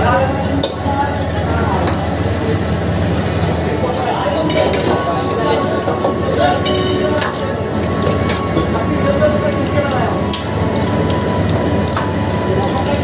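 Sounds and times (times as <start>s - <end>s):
gas burner rushing: 0.0s - 13.0s
food sizzling in a wok: 0.1s - 13.0s
metal ladle clinking on wok: 5.8s - 8.8s.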